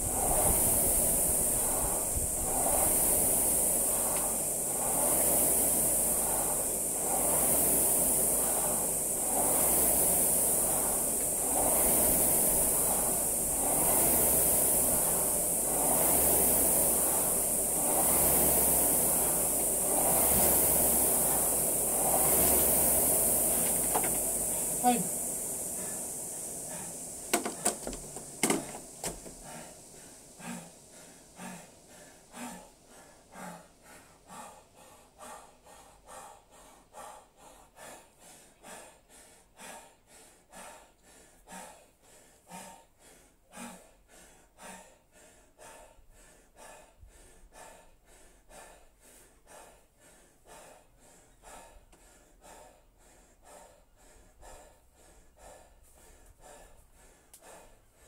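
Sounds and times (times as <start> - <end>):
rowing machine: 0.0 - 41.8
man breathing hard: 0.0 - 58.0.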